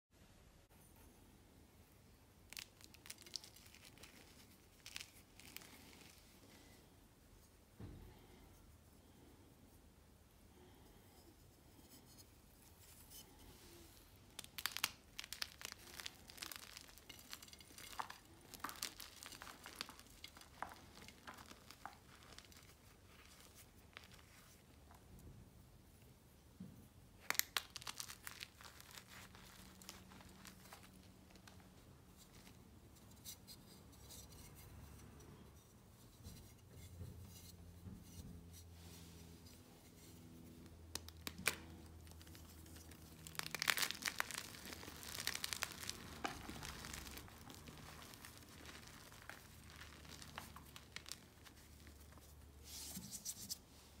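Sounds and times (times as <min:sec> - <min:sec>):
chalk pieces rustling: 0:02.5 - 0:06.7, 0:11.8 - 0:25.0, 0:27.2 - 0:34.6, 0:41.0 - 0:53.6.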